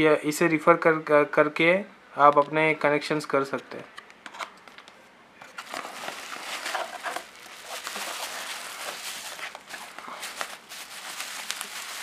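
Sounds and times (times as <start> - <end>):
bubble wrap crinkling: 5.6 - 12.0.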